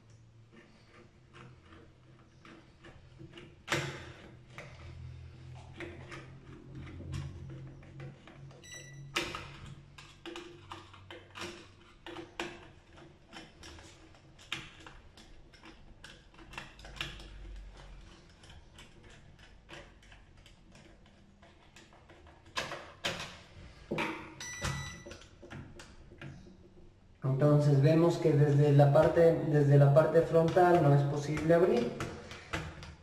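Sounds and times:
screwdriver working on metal: 0.0 - 22.6
short electronic beep: 8.6 - 9.1, 24.4 - 25.0.

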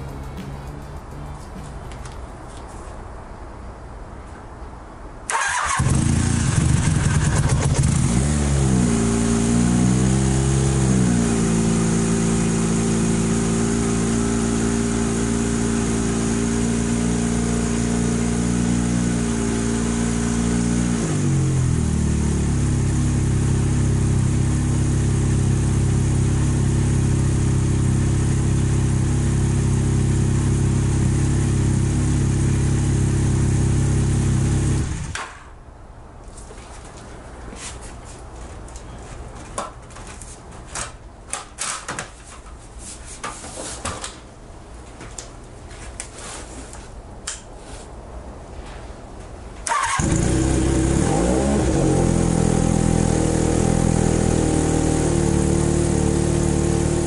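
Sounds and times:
motorcycle engine starting and idling: 5.3 - 35.5, 49.6 - 57.0.

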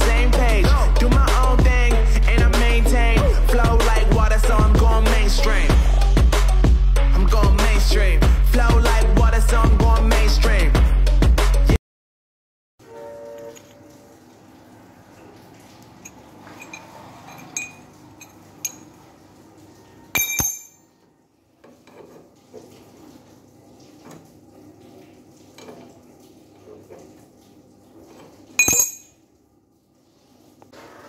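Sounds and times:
steel parts clinking: 16.0 - 19.0, 20.2 - 20.9, 28.6 - 29.2
sharp metallic clanks: 16.1 - 18.9, 20.2 - 21.0, 28.6 - 29.2.

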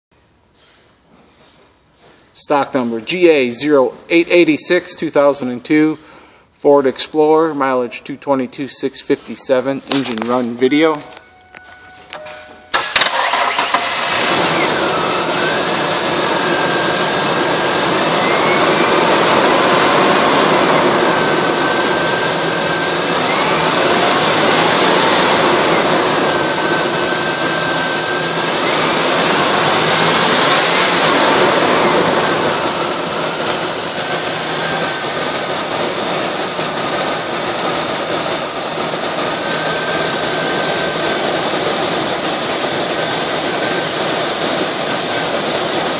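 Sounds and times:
faint whine: 9.2 - 37.6
car engine starting and running: 12.7 - 45.9.

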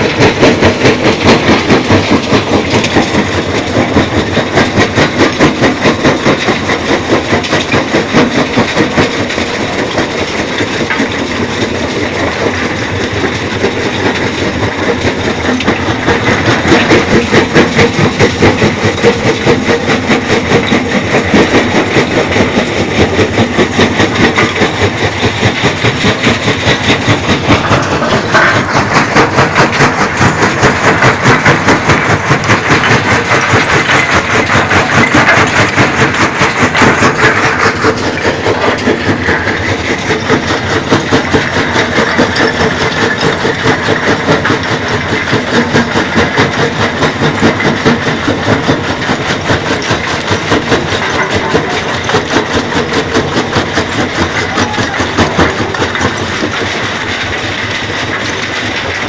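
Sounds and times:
stones rattling on shaking steel deck: 0.0 - 59.0.

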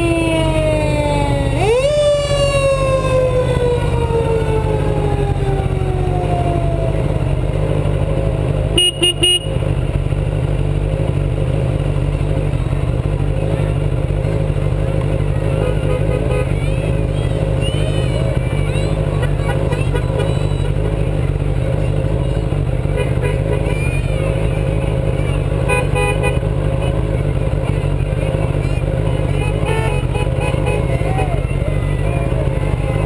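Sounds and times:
fire truck siren: 0.0 - 7.5, 29.5 - 33.0
low engine rumble: 0.0 - 33.0
horn blasts: 8.7 - 9.7, 15.5 - 16.6, 25.6 - 27.1, 29.3 - 31.5.

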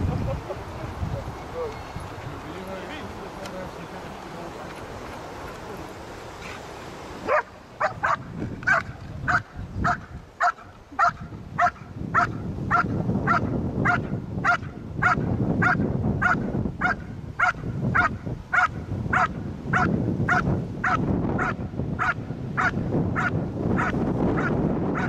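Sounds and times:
dog barking: 7.2 - 25.0.

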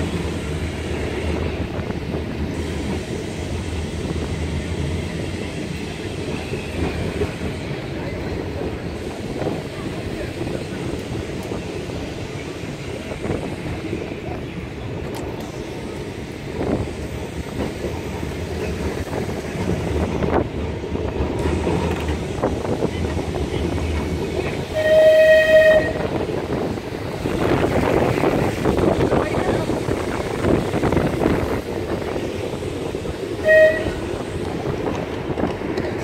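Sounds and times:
tram wheels and motors rumbling: 0.0 - 36.0
tram horn: 24.5 - 26.3, 33.4 - 34.2.

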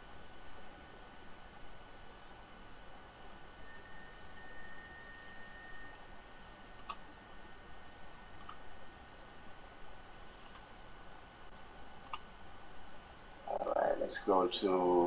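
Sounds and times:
low steady hiss: 0.0 - 15.0
computer mouse clicks: 6.8 - 7.0, 8.4 - 8.6, 10.4 - 10.7, 12.0 - 12.3.

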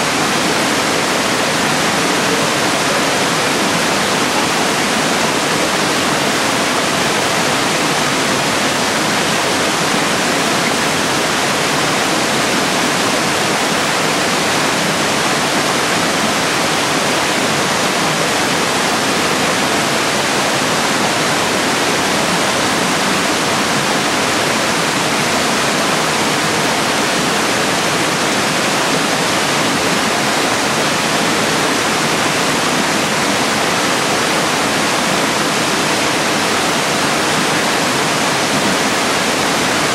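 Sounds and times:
rush of falling water: 0.0 - 39.9.

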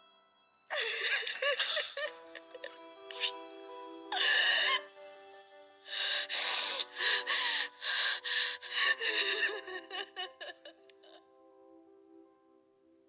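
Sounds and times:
sustained music notes: 0.0 - 11.2
person gasping breaths: 5.9 - 9.6.

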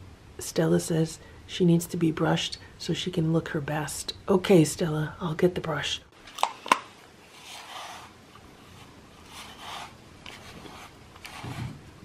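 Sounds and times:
brush swishing through cat fur: 7.3 - 11.8.

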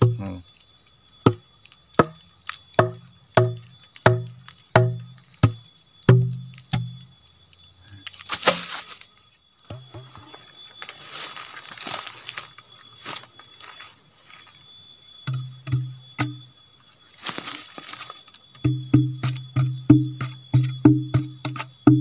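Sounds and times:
hollow bamboo knocks: 2.0 - 2.2, 2.8 - 7.0, 15.2 - 16.4, 18.6 - 22.0
dry bamboo crackling and scraping: 7.9 - 14.8, 15.6 - 19.5.

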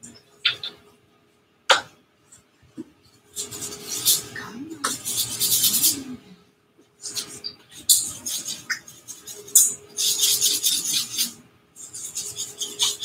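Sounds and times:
paintbrush scrubbing on canvas: 3.4 - 6.1, 7.0 - 13.0.

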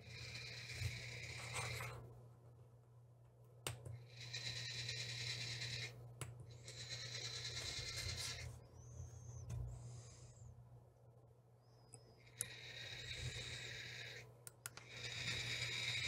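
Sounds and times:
low steady hum: 0.0 - 16.0
small motor whirring: 4.0 - 6.0, 6.6 - 8.4, 12.4 - 16.0.

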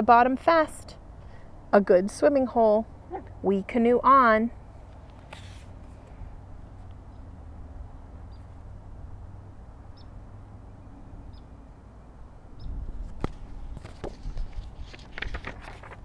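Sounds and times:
paper rustling: 5.0 - 6.2, 13.0 - 16.0
small bird chirping: 8.3 - 8.6, 9.9 - 10.2, 11.3 - 11.5.

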